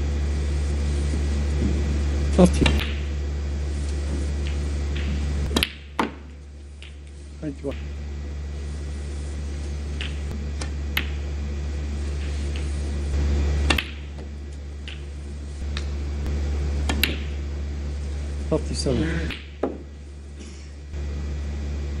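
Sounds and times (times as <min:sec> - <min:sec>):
steady low hum: 0:00.0 - 0:22.0
snooker balls clicking: 0:00.5 - 0:08.0, 0:08.8 - 0:11.3, 0:12.0 - 0:16.0, 0:16.8 - 0:17.4, 0:18.2 - 0:20.0.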